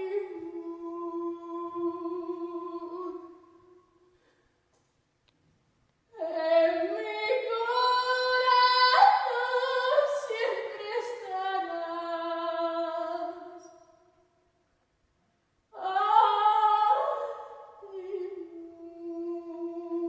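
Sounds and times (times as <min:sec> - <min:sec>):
woman singing unaccompanied: 0:00.0 - 0:03.7, 0:06.1 - 0:13.7, 0:15.8 - 0:20.0.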